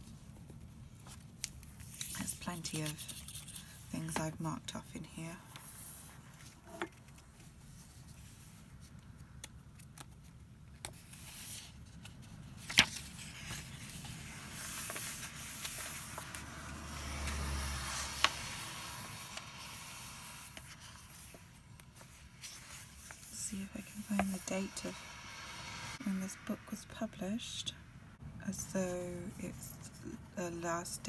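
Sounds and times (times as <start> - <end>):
book pages rustling: 0.0 - 4.2, 5.5 - 24.6.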